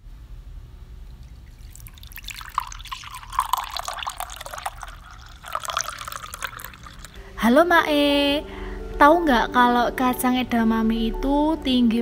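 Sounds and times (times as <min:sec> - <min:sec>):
milk pouring into a glass: 0:01.1 - 0:07.2.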